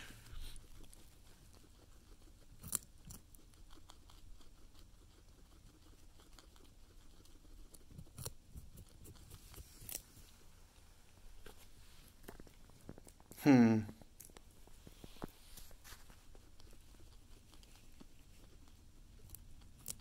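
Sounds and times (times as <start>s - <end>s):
guinea pigs gnawing carrot: 0.0s - 20.0s.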